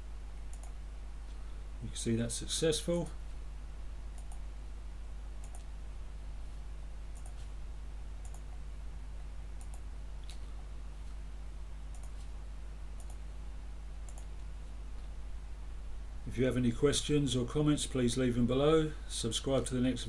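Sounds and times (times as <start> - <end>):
steady low hum: 0.0 - 20.0
computer mouse clicking: 0.5 - 0.8, 4.1 - 4.4, 5.4 - 5.7, 7.1 - 7.5, 8.2 - 8.6, 9.6 - 10.4, 11.9 - 12.3, 13.0 - 13.2, 14.1 - 14.5.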